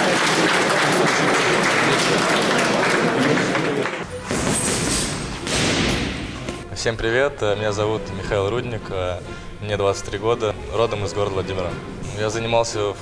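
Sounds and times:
crowd applauding: 0:00.0 - 0:04.1
background music: 0:00.0 - 0:13.0.

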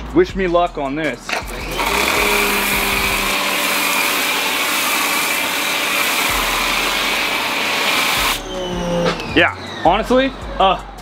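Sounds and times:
pressure washer foam spraying: 0:01.4 - 0:08.4.

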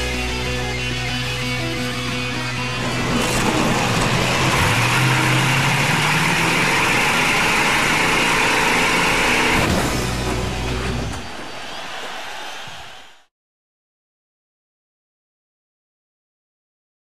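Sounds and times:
car engine revving: 0:01.4 - 0:11.1.

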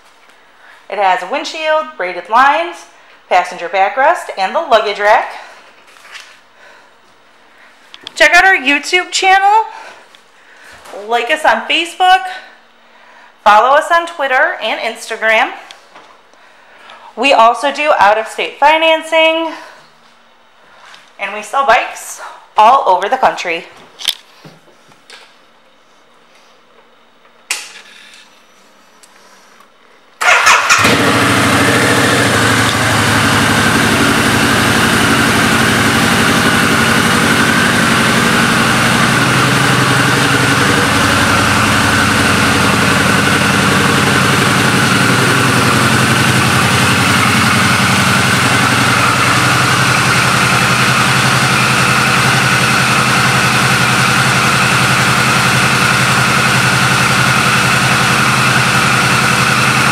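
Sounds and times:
motorcycle engine idling: 0:30.2 - 0:59.9.

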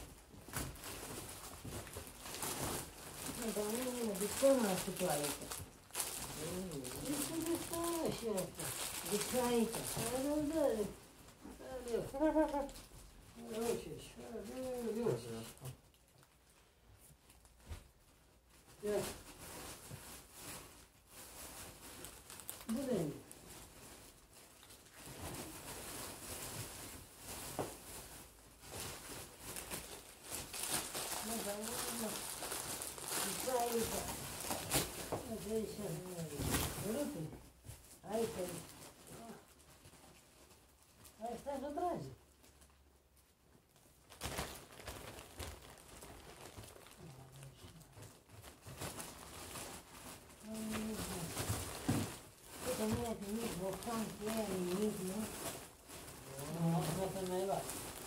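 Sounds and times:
plastic bags rustling: 0:00.0 - 0:58.0.

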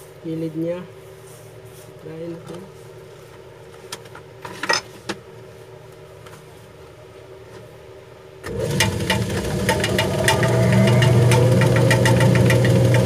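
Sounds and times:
grinding machine humming: 0:08.5 - 0:13.0
rough grinding noise: 0:08.5 - 0:13.0.

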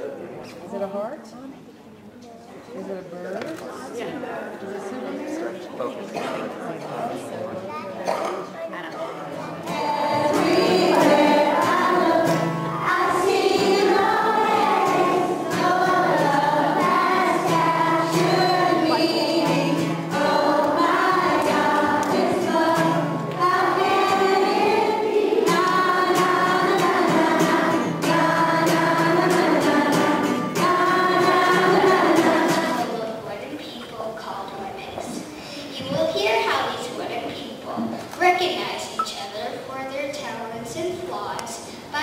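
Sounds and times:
children singing together: 0:09.5 - 0:33.2
musical accompaniment: 0:09.7 - 0:32.8.

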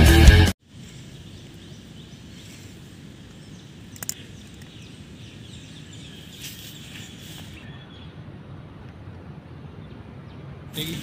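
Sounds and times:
faint bird chirps: 0:00.7 - 0:08.6
sharp clicks: 0:03.8 - 0:04.8.

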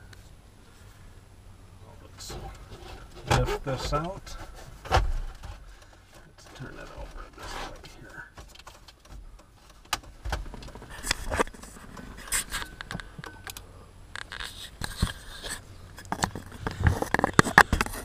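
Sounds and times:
plastic clicks and scrapes: 0:14.2 - 0:18.0.

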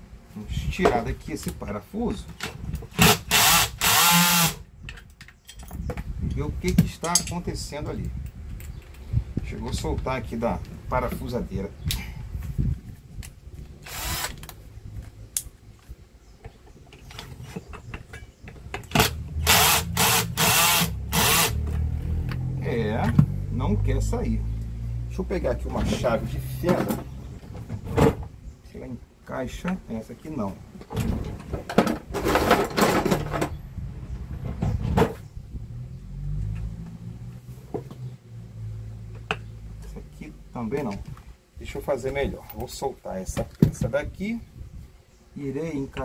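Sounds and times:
cordless drill bursts: 0:03.0 - 0:04.6, 0:13.8 - 0:14.5, 0:18.9 - 0:21.6.

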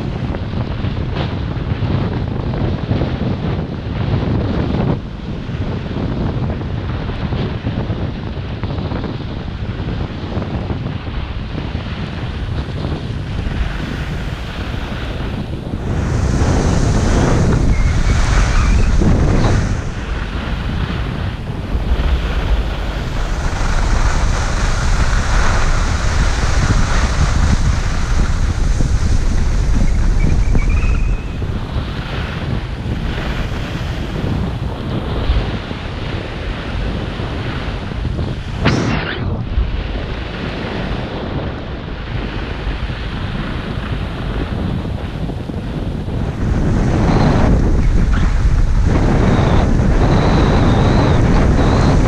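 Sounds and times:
wind over microphone: 0:00.0 - 0:52.0
skis scraping packed snow: 0:13.6 - 0:31.2.

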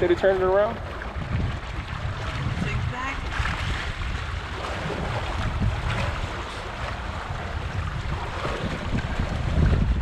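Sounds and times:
water rushing along hulls: 0:00.0 - 0:10.0
wind buffeting microphone: 0:00.0 - 0:10.0.

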